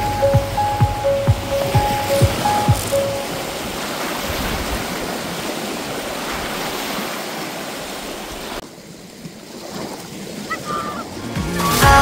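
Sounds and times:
background music: 0:00.0 - 0:03.4, 0:11.2 - 0:12.0
lake waves washing on shore: 0:00.0 - 0:12.0.

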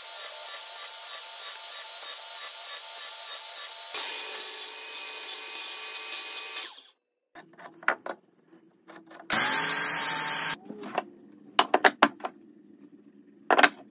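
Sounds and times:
miter saw cutting wood: 0:00.0 - 0:06.9, 0:09.3 - 0:10.6.

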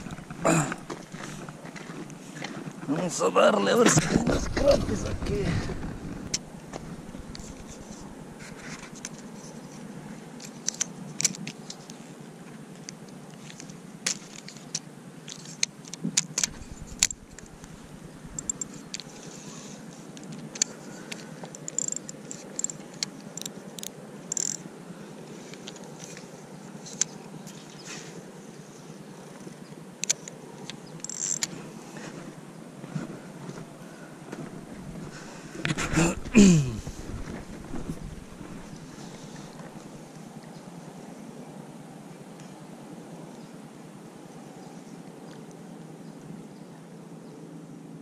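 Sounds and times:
fishing reel clicks: 0:18.4 - 0:18.7, 0:21.6 - 0:24.6, 0:31.0 - 0:31.5.

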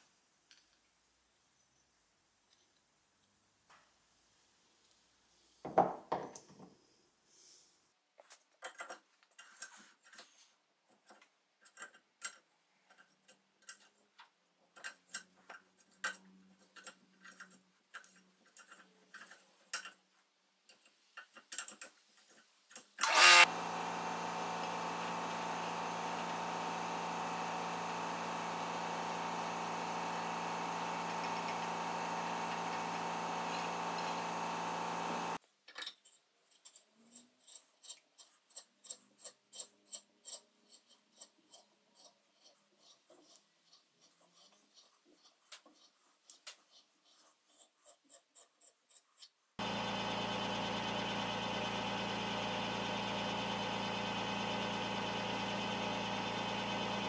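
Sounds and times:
power tool running: 0:23.0 - 0:35.4, 0:49.6 - 0:57.0.

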